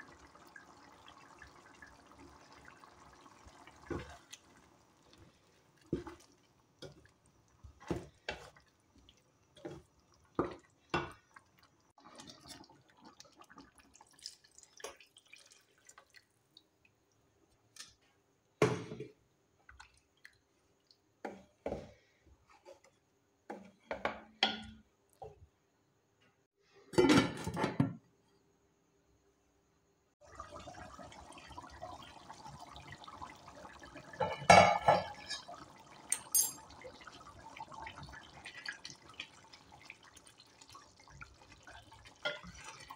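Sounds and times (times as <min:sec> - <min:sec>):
wooden spoon stirring thick curry: 0:03.6 - 0:14.0, 0:38.6 - 0:42.9.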